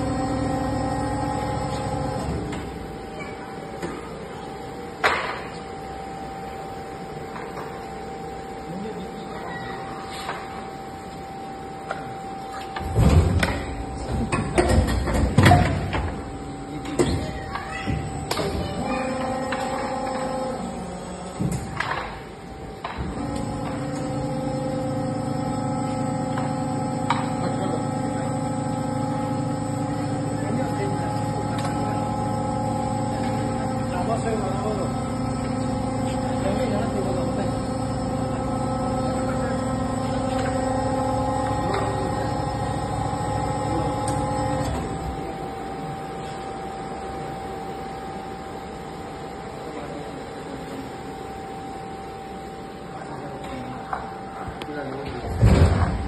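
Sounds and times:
machine humming: 0.0 - 9.8, 10.6 - 56.0
high whine: 22.8 - 47.1.

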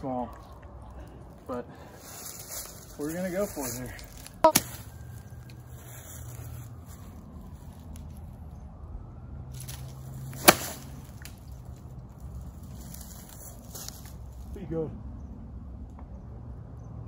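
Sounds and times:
golf club striking ball: 10.4 - 11.0.

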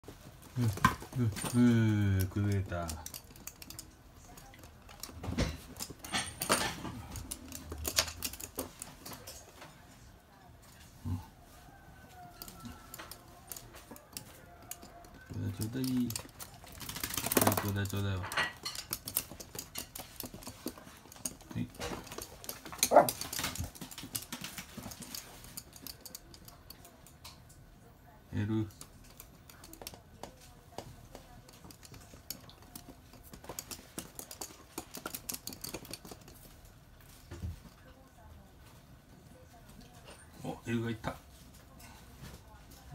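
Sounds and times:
dog claws clicking on hard floor: 0.1 - 9.7, 12.3 - 27.6, 28.7 - 37.9.

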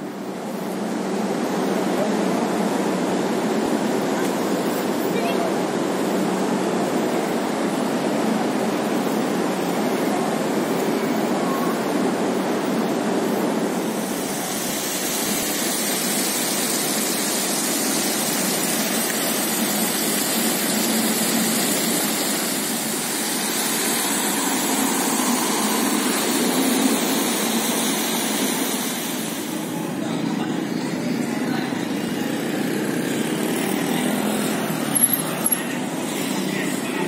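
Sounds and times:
fountain water splashing: 13.9 - 29.5
light traffic: 29.5 - 37.0.

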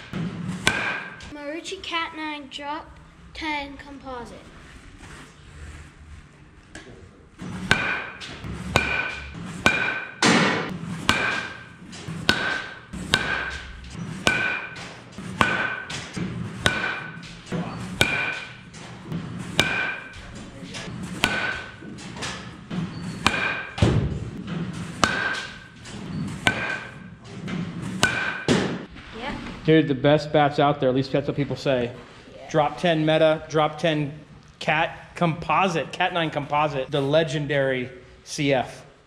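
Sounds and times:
bat cracking balls: 7.4 - 28.9.

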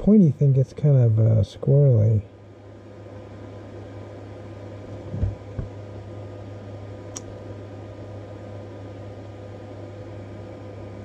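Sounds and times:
fan humming: 0.0 - 11.0
soft low thumps: 4.9 - 5.8
small click: 7.1 - 7.4.

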